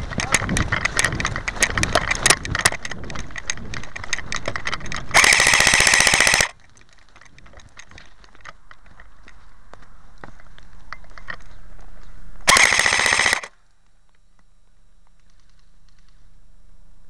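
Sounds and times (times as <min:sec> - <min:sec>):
irregular clicks and crackles: 0:00.0 - 0:16.3
airsoft gun full-auto burst: 0:05.1 - 0:06.6, 0:12.5 - 0:13.5.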